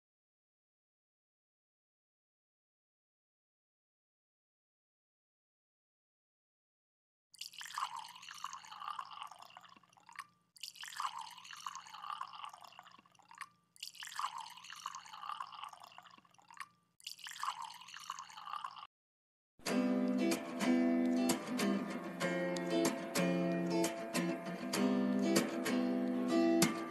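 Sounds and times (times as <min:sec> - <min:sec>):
liquid pouring into metal pot: 0:07.4 - 0:18.9.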